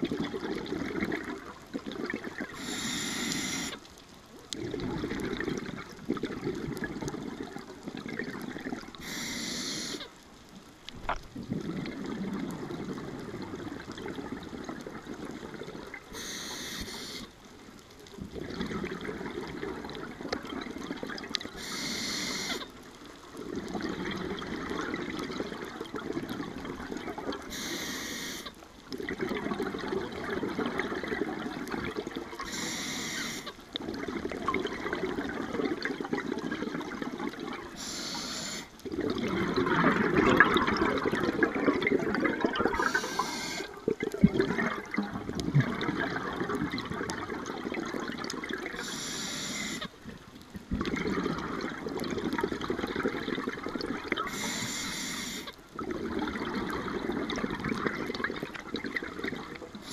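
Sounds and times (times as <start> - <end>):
exhaled bubbles rushing: 0.0 - 2.7, 4.5 - 9.0, 11.3 - 16.2, 18.2 - 21.6, 23.4 - 27.6, 28.9 - 32.5, 33.8 - 37.8, 38.8 - 48.9, 50.6 - 54.4, 55.7 - 59.9
regulator inhalation hiss: 2.6 - 3.8, 9.0 - 10.1, 16.2 - 17.3, 21.6 - 22.7, 27.5 - 28.5, 32.5 - 33.5, 37.8 - 38.7, 42.8 - 43.8, 48.8 - 49.9, 54.3 - 55.5.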